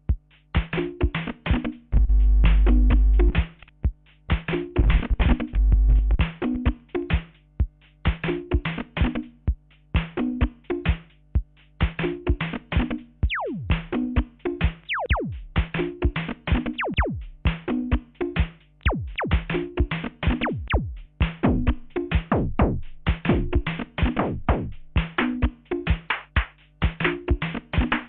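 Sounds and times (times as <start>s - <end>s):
drum machine beat: 0.0s - 28.0s
repeating bass pattern: 2.0s - 3.6s, 13.2s - 17.5s, 18.8s - 25.5s.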